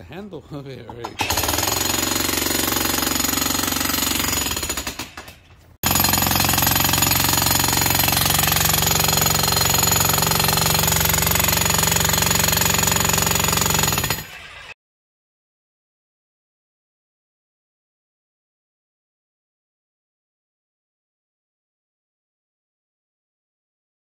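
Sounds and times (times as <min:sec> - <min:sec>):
jackhammer pounding concrete: 0:01.0 - 0:14.8.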